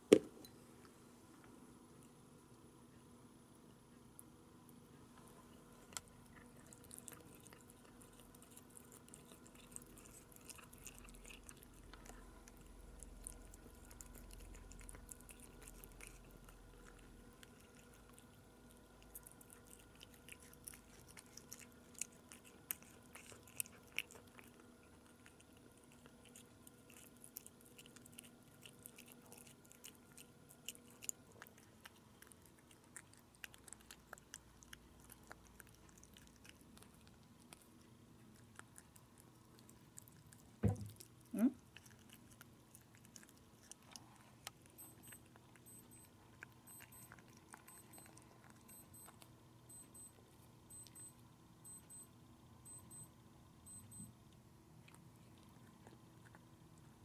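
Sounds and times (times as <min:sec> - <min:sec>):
faint steady hum: 0:00.0 - 0:57.0
cat chewing wet food: 0:03.5 - 0:52.0, 0:53.6 - 0:57.0.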